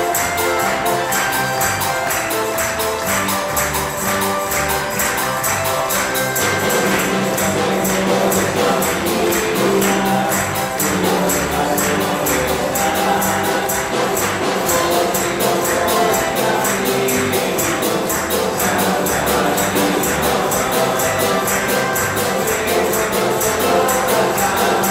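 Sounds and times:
jingling percussion beat: 0.0s - 24.9s
live band music: 0.0s - 24.9s
steady bass line: 0.0s - 24.9s.

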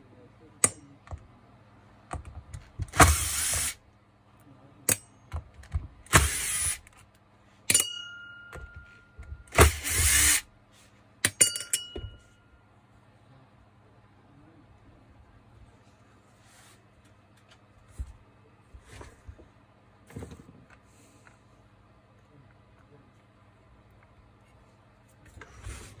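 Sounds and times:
cordless driver spinning: 2.9s - 3.8s, 6.1s - 6.9s, 9.5s - 10.4s.

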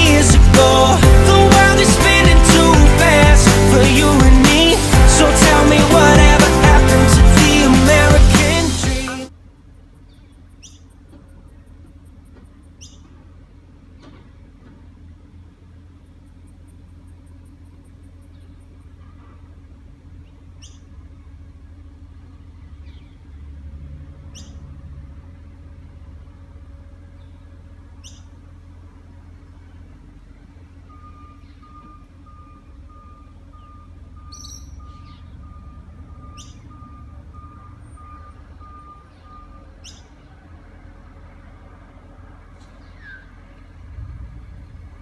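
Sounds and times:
truck engine idling: 0.0s - 45.0s
bird chirping: 9.9s - 13.3s, 15.4s - 19.2s, 20.1s - 23.4s, 24.2s - 24.7s, 27.1s - 28.4s, 29.7s - 40.5s, 42.6s - 43.6s
reversing alarm beeping: 30.8s - 40.2s.

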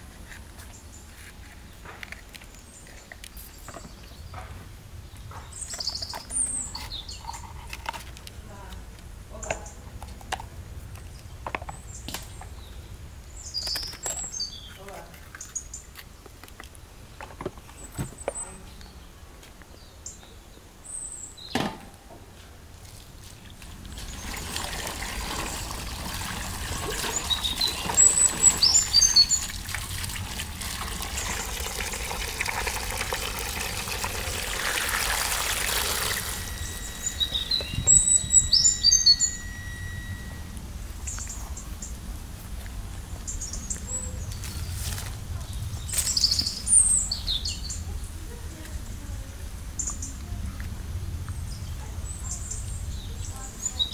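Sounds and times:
birds chirping: 0.0s - 9.9s, 11.0s - 21.6s, 23.2s - 53.9s
tap water running into a basin: 23.5s - 40.2s.

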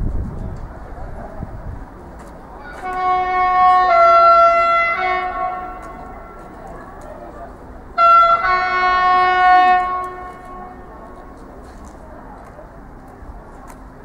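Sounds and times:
low rumble of train: 0.0s - 14.0s
two-tone train horn: 2.7s - 6.5s, 8.0s - 11.3s.

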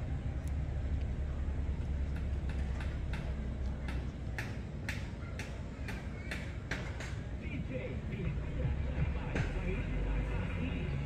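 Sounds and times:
low steady rumble: 0.0s - 4.9s, 7.2s - 11.0s.

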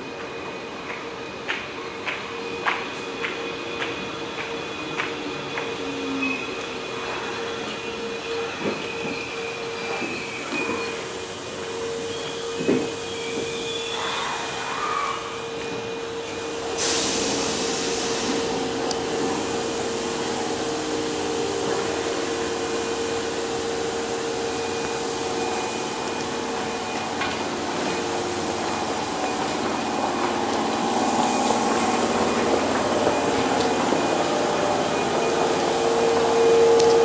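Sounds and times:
train equipment humming: 0.0s - 37.0s
air hissing: 16.2s - 37.0s.

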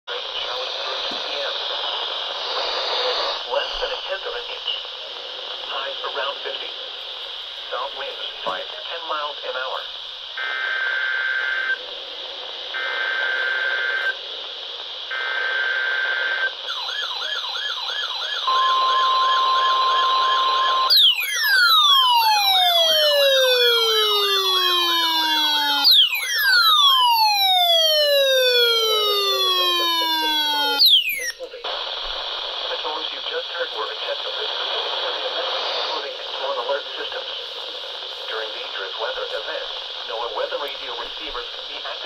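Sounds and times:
siren with falling sweeps: 16.7s - 31.3s
data tone bursts: 18.4s - 21.9s.

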